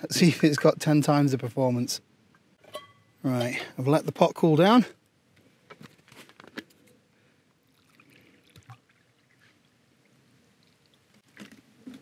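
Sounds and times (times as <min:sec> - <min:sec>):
water pouring into bowl: 0:07.6 - 0:09.8.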